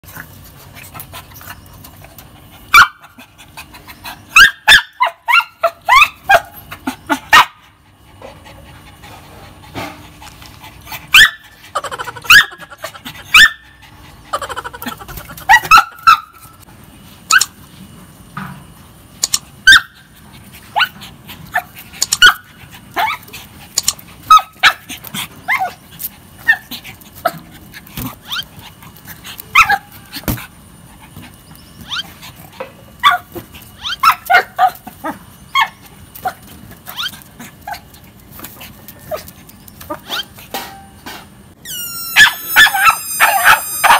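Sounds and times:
dog barking in sharp yaps: 41.7s - 43.9s.

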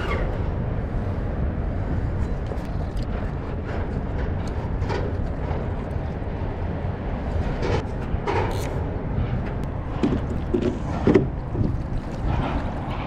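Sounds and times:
low wind rumble: 0.0s - 13.0s.

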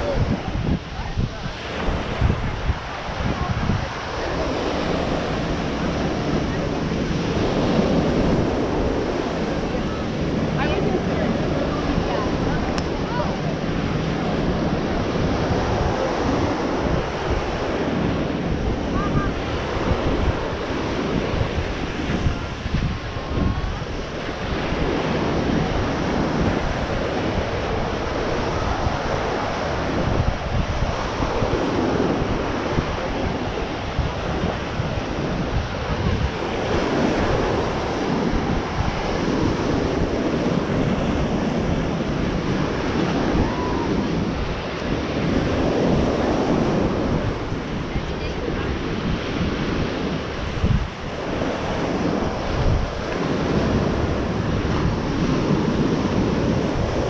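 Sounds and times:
ocean surf on beach: 0.0s - 57.0s
wind buffeting microphone: 0.0s - 57.0s.

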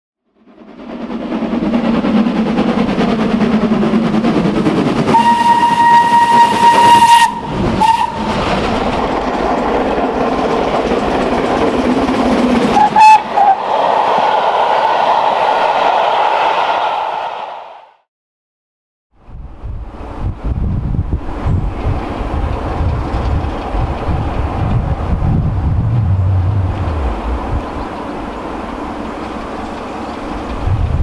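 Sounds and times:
steam locomotive rumbling: 0.3s - 17.8s, 19.2s - 31.0s
steam whistle blasts: 5.1s - 8.3s, 12.8s - 13.6s.

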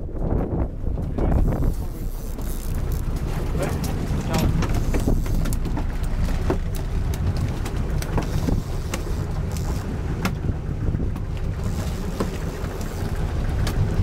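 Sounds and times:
boat engine rumbling: 0.0s - 14.0s
wind buffeting microphone: 0.0s - 14.0s
sharp knocks and clicks: 2.3s - 10.4s.

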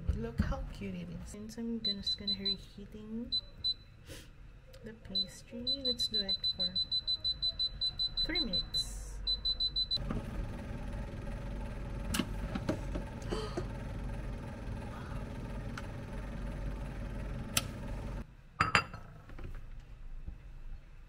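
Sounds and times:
air fryer fan hum: 9.5s - 18.2s.

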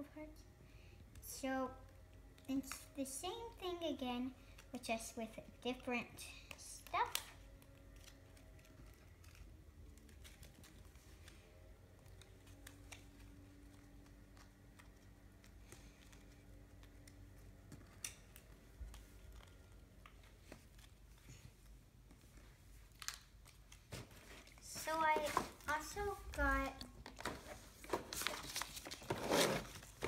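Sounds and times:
card sheet clicks and rustles: 6.4s - 30.0s.

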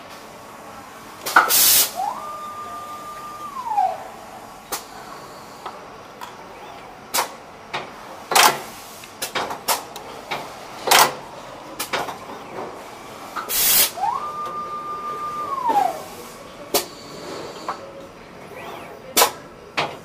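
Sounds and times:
compressed air hiss: 1.2s - 2.3s, 3.8s - 5.9s, 8.4s - 9.8s, 12.8s - 14.0s, 15.7s - 17.8s
drive motor whining: 1.2s - 7.0s
machine clacks and knocks: 7.2s - 11.2s.

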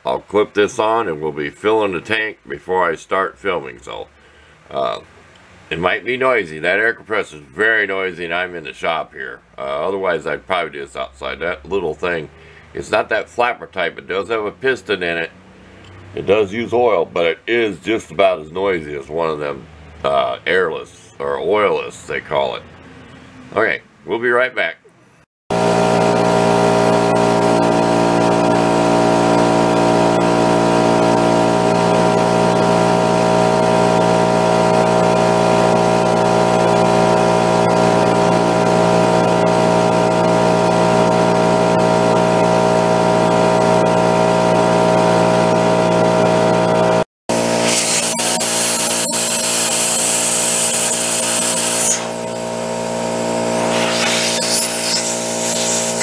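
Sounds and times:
air compressor running: 25.5s - 56.0s
compressed air hissing: 47.6s - 52.2s, 53.6s - 56.0s.

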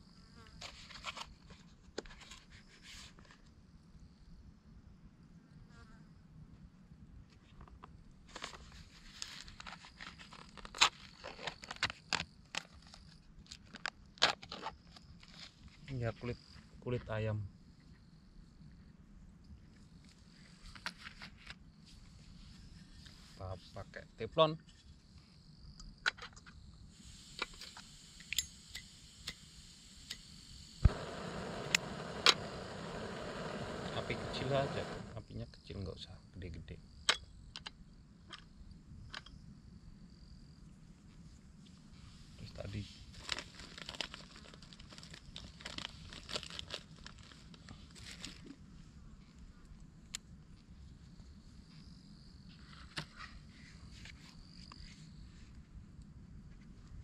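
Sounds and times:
gas hissing from valve: 26.9s - 35.2s
gas burner roaring: 27.0s - 35.2s
igniter clicks: 27.3s - 35.1s
packets torn open: 43.2s - 48.4s
plastic packaging crinkling: 43.2s - 48.4s.

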